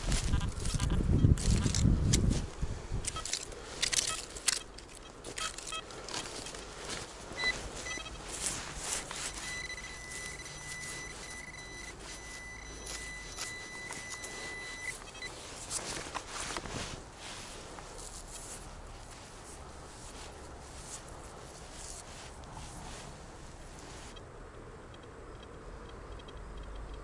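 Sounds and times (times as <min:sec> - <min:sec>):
clicks and rustles: 0:00.0 - 0:22.6
metal detector beeps: 0:03.0 - 0:16.0
metal detector high tone: 0:04.0 - 0:06.6, 0:07.3 - 0:15.4.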